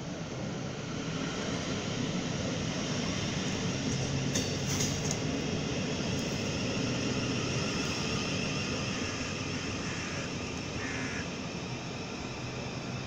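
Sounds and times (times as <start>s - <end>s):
train wheels rumbling: 0.1s - 13.0s
faint high whine: 6.1s - 13.0s.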